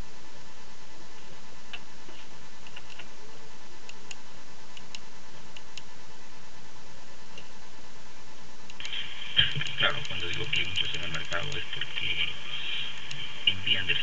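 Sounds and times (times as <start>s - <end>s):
background hiss: 0.0s - 14.0s
faint hum: 0.0s - 14.0s.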